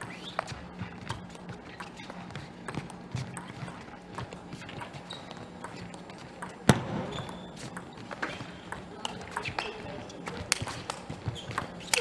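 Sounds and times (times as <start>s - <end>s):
shoe squeaks on floor: 4.5s - 5.9s, 6.8s - 8.4s, 10.7s - 12.0s.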